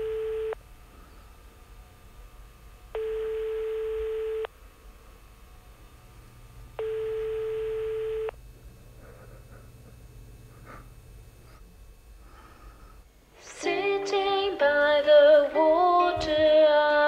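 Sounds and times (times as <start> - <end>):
telephone ringback beeps: 0.0 - 0.6, 3.0 - 4.5, 6.8 - 8.3.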